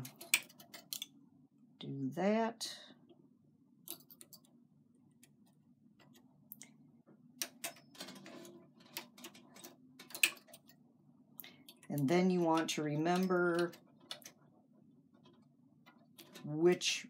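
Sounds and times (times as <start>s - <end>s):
metal tools clicking on needles: 11.4s - 14.4s.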